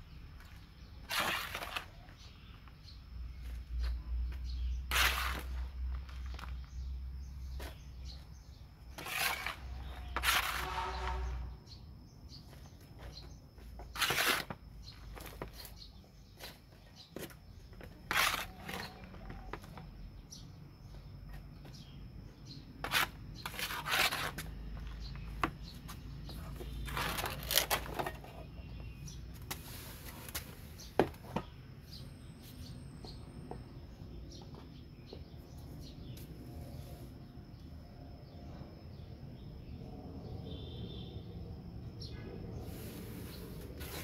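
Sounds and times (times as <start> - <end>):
potting soil rustling and crumbling: 0.3 - 11.4, 12.6 - 19.9, 22.8 - 31.6, 42.6 - 44.0.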